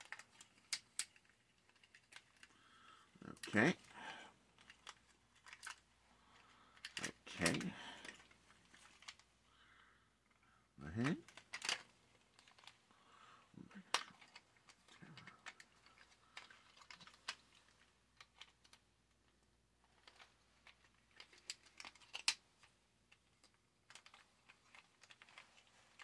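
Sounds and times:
plastic toy joints clicking: 0.0 - 2.6, 6.4 - 9.2, 11.1 - 12.8, 13.8 - 18.8, 19.9 - 22.5, 23.1 - 26.0.

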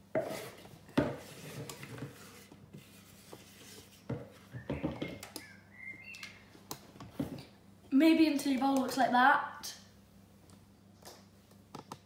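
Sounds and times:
light knocks and scrapes: 0.2 - 5.2.

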